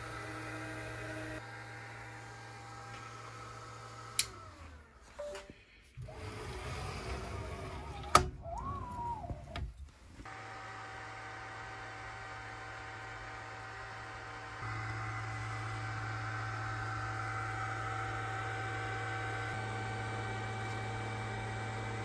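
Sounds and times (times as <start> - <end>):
laser cutter fan and motor hum: 0.0 - 4.5, 10.3 - 22.0.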